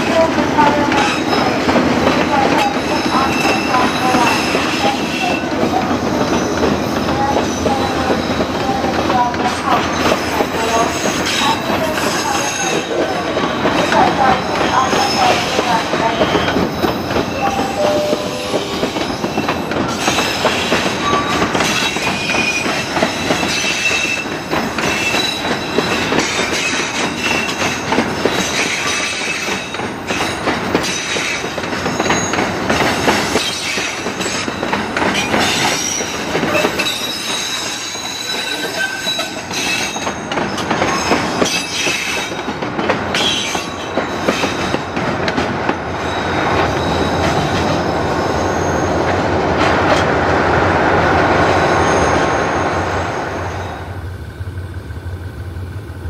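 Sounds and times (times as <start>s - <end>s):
train wheels rattling on rail: 0.0s - 56.0s
wheels squealing: 46.0s - 49.0s.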